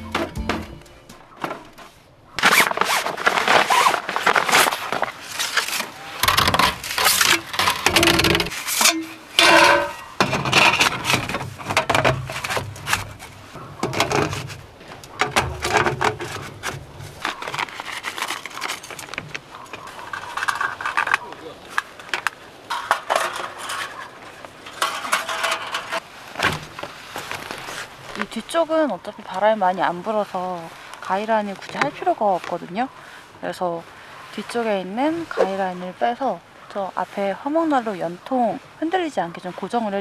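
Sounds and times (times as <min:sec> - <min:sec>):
metal stovepipes scraping and clattering: 0:05.3 - 0:26.0.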